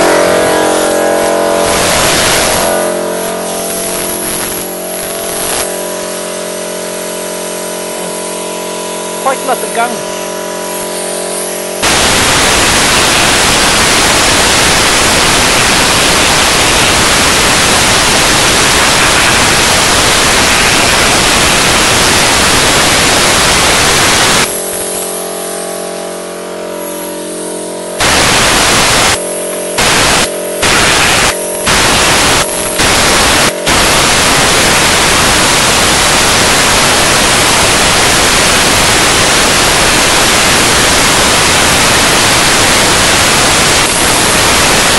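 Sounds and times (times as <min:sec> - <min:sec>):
spray gun hissing: 0:00.0 - 0:08.1, 0:09.4 - 0:26.0, 0:26.7 - 0:44.9
steady machine hum: 0:00.0 - 0:44.9.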